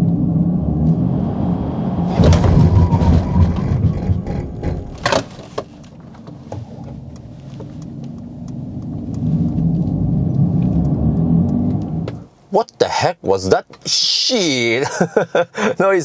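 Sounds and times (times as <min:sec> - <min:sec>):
synthetic car drive hum: 0:00.0 - 0:12.3
thump: 0:02.1 - 0:05.7.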